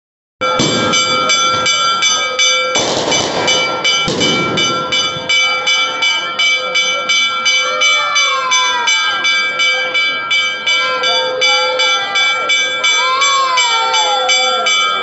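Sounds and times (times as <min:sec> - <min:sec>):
bell struck rapidly: 0:00.4 - 0:15.0
sharp bang: 0:00.5 - 0:01.9, 0:02.8 - 0:05.5.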